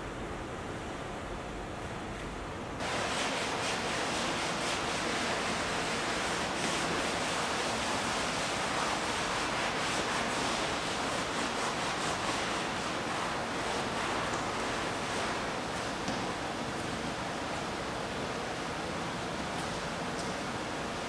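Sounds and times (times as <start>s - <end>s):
wet sponge scrubbing canvas: 2.8s - 16.0s.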